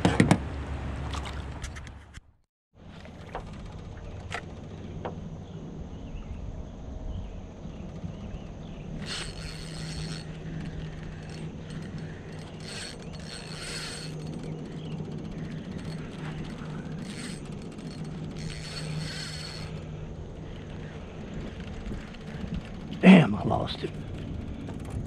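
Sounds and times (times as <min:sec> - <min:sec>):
steady low hum: 0:02.8 - 0:25.0
fishing reel whirring and clicking: 0:08.9 - 0:23.0.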